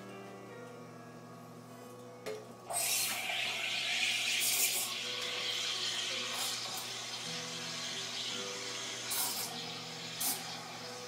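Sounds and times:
soft background music: 0.0s - 11.0s
espresso machine steam hiss: 2.7s - 11.0s.

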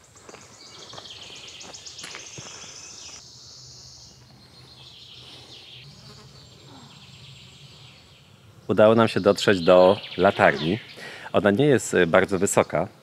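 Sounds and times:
footsteps crunching on path: 0.0s - 3.2s.

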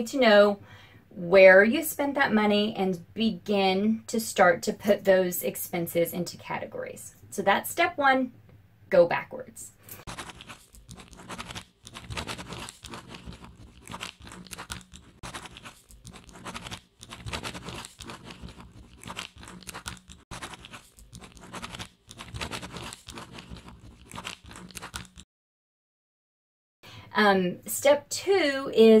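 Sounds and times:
pencil scribbling on paper: 10.0s - 25.2s.

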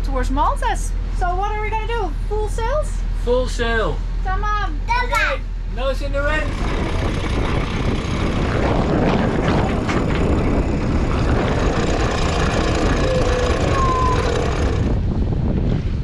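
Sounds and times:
powered winch motor whirring: 6.4s - 15.0s.

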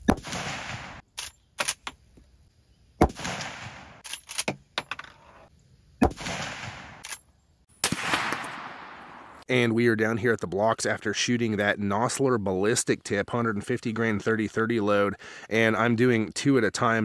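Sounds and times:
rifle shots echoing: 0.1s - 1.0s, 3.0s - 4.0s, 6.0s - 7.0s, 7.8s - 9.4s.

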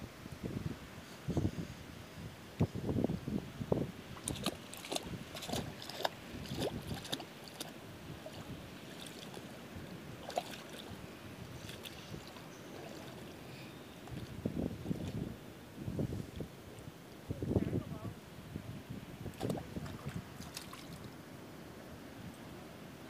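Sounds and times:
wind noise on microphone: 0.0s - 12.4s, 14.0s - 21.1s
water splashing underfoot: 4.1s - 15.3s, 19.3s - 21.2s.

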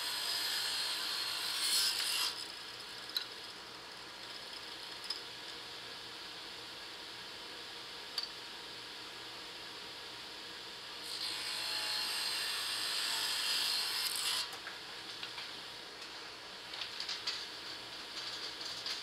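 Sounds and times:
table saw cutting plastic: 0.0s - 2.4s, 11.1s - 14.6s.

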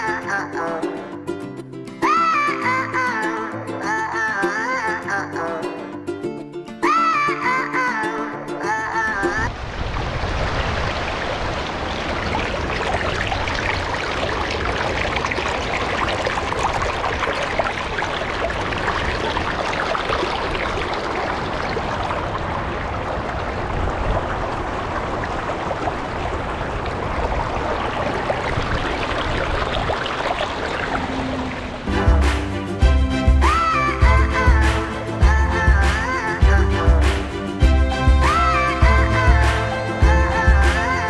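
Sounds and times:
stream water babbling over rocks: 8.2s - 41.0s.

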